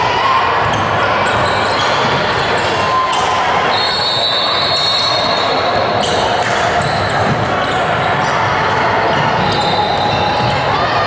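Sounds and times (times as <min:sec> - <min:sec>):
loud din of gym hall: 0:00.0 - 0:11.0
sneakers squeaking on court: 0:00.6 - 0:03.3.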